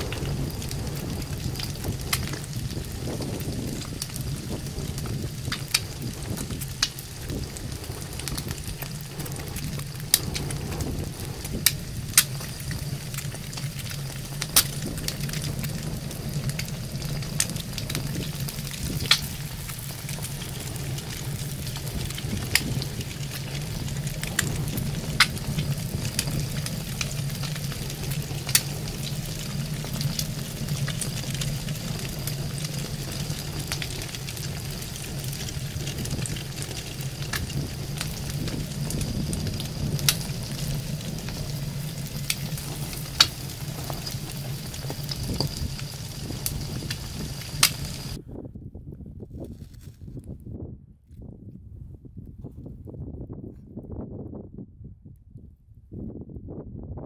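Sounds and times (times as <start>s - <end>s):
eggs sizzling in a frying pan: 0.0s - 48.2s
sharp pops: 35.2s - 48.2s.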